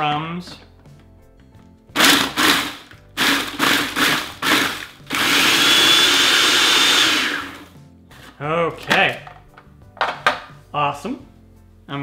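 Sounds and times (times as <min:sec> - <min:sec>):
food processor motor whining: 0:02.0 - 0:07.8.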